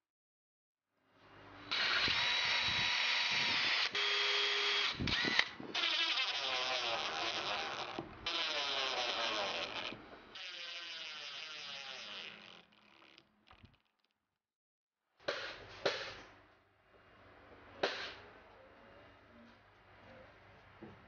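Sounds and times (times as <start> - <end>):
power drill driving screws: 1.7 - 12.7.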